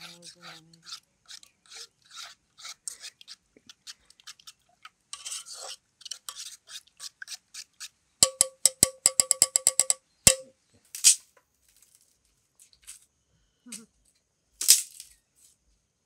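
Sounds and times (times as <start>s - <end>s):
fork whisking batter in metal bowl: 0.0s - 10.0s
sharp ringing clicks: 8.2s - 10.5s.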